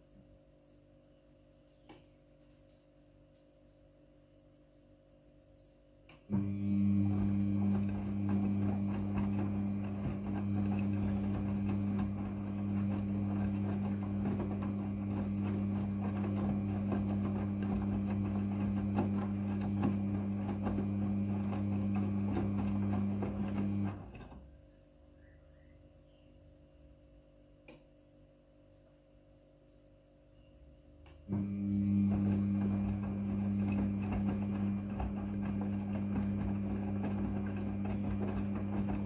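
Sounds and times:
washing machine motor hum: 6.3 - 24.7, 31.2 - 39.0
wet towels and water tumbling: 6.4 - 24.3, 31.4 - 39.0.

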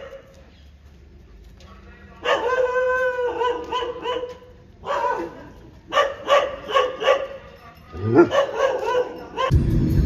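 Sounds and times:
dog whining and yelping: 2.3 - 9.5.

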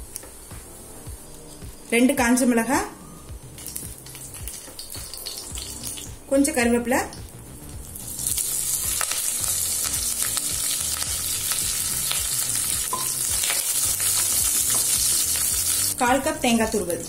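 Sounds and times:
leaves sizzling in hot oil: 3.5 - 6.4, 7.7 - 17.0.

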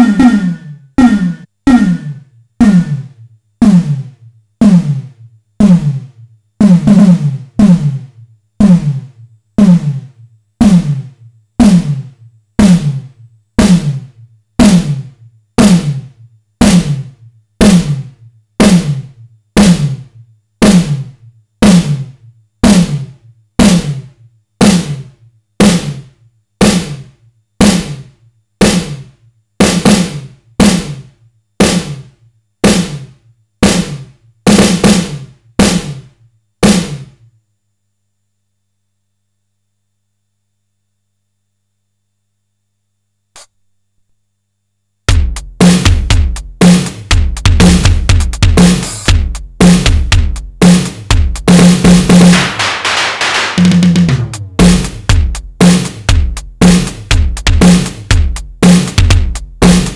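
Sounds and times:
high ringing tone: 0.0 - 3.1
synthesized snare drum hits: 0.0 - 37.2, 45.1 - 59.9.

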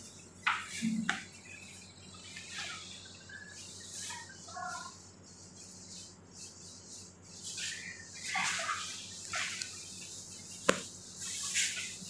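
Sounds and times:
hands rubbing together: 3.6 - 12.0.

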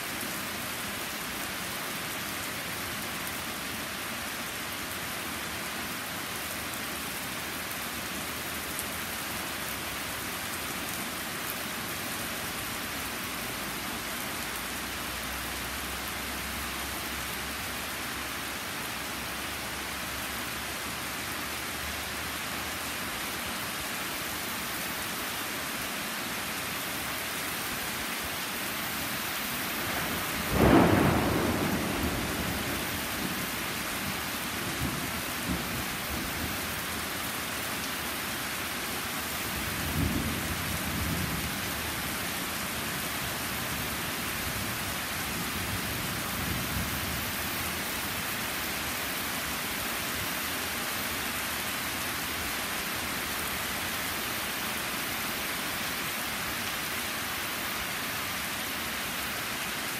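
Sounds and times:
rain falling on trees and patio: 0.0 - 59.9
thunder clap rumbling: 29.8 - 36.6.

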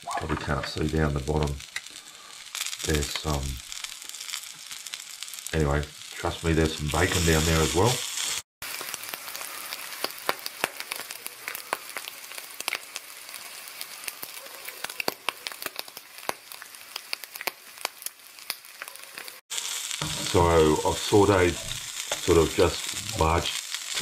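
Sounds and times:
fat crackling and popping: 0.0 - 24.0
bacon sizzling in a pan: 0.5 - 24.0.

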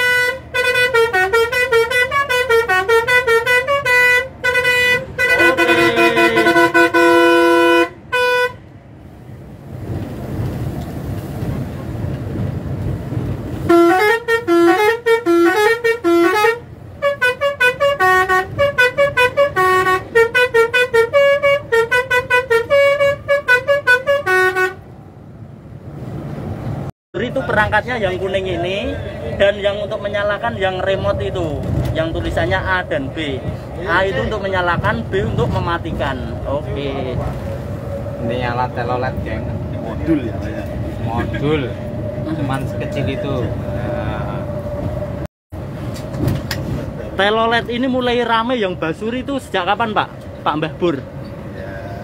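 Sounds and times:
bus air horn melody: 0.0 - 8.6, 13.6 - 24.9
engine and road rumble: 0.0 - 52.0.

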